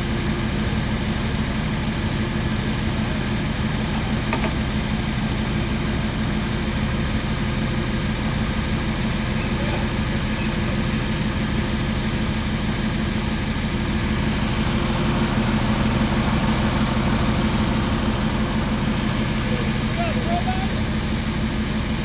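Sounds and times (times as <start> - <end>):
fire engine droning: 0.0 - 22.0.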